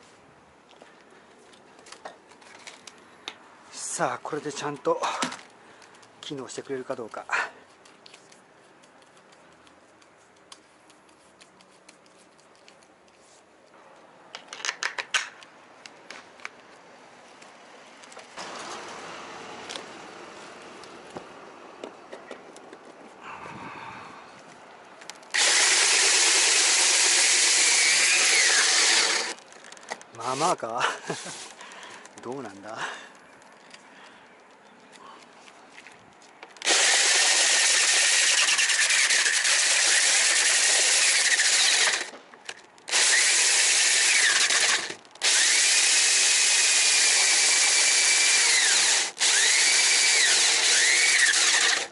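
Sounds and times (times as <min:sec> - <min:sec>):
electric drill sanding: 0:25.3 - 0:29.4, 0:36.6 - 0:42.1, 0:42.9 - 0:51.9
sharp clicks and rattles: 0:36.1 - 0:51.9.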